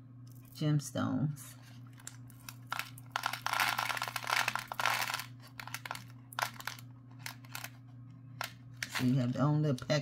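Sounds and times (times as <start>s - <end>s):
plastic packet crinkling: 1.9s - 7.8s.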